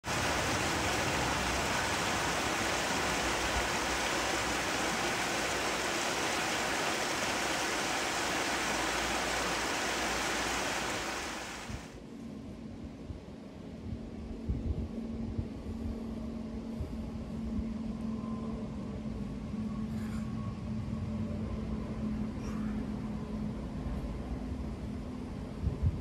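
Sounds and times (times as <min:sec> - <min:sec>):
river rushing over stones: 0:00.0 - 0:11.9.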